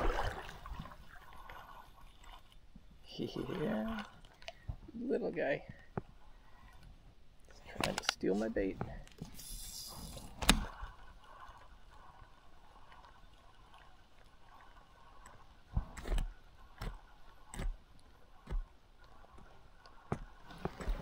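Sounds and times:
stream water running: 0.0 - 21.0
hiss: 9.3 - 10.3.

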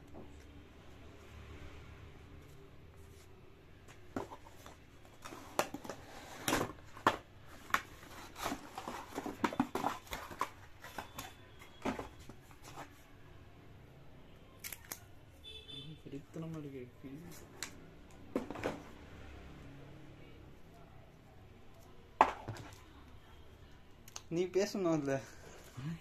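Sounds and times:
cardboard scraping and rustling: 4.1 - 13.0.

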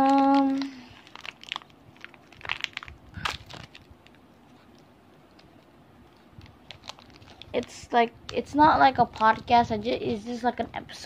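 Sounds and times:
plastic packaging crackling: 0.0 - 4.3, 5.3 - 9.6.

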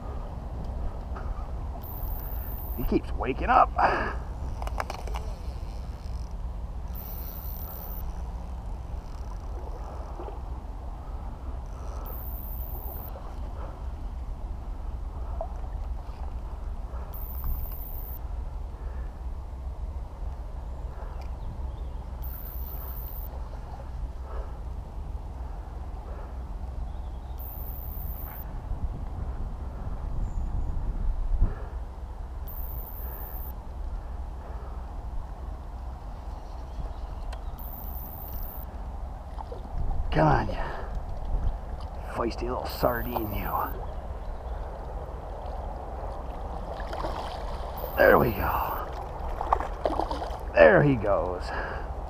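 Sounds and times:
wind rumble on microphone: 0.0 - 52.0
river current: 1.8 - 19.1, 37.5 - 52.0.

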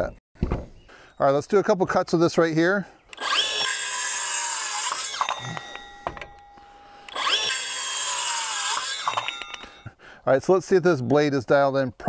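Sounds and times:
circular saw cutting board: 3.1 - 9.9.

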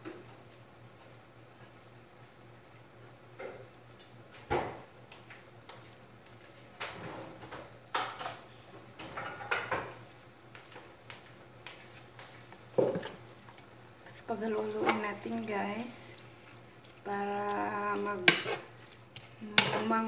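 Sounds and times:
dishes and utensils clattering: 7.9 - 10.0, 12.8 - 13.2.

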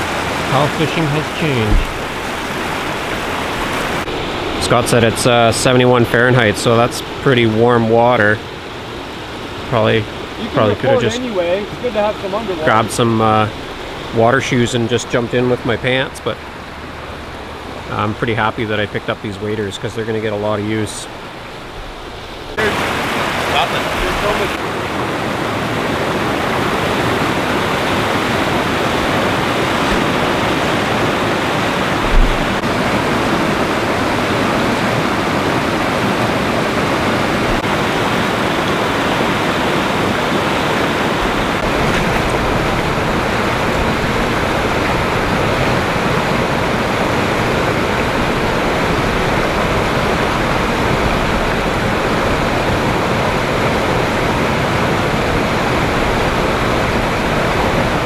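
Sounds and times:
river rushing over rocks: 0.0 - 58.0
low thump: 1.6 - 2.3, 32.0 - 32.6.

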